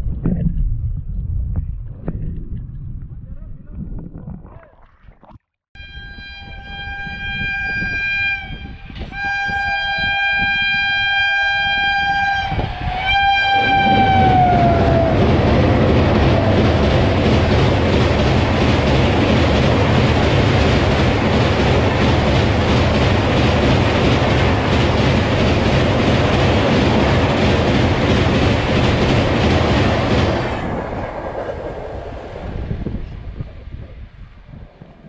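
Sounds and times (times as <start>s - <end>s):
locomotive horn blasts: 5.8s - 15.2s
train wheels rumbling on bridge: 6.6s - 35.0s.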